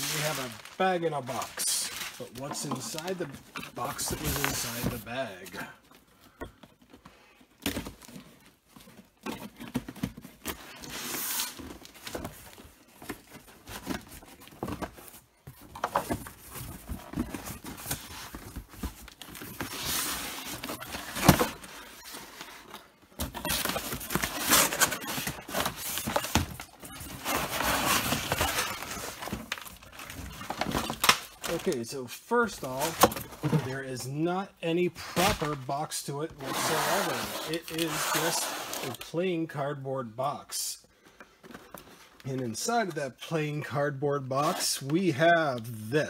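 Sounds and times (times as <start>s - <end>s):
cardboard scraping and rustling: 0.0s - 5.8s, 7.7s - 31.8s, 32.5s - 34.0s, 36.3s - 39.0s.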